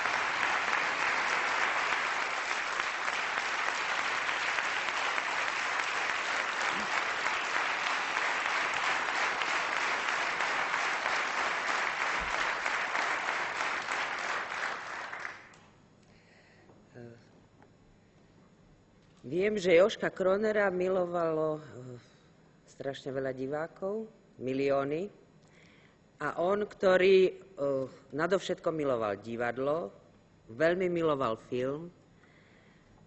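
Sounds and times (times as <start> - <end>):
audience applauding: 0.0 - 15.6.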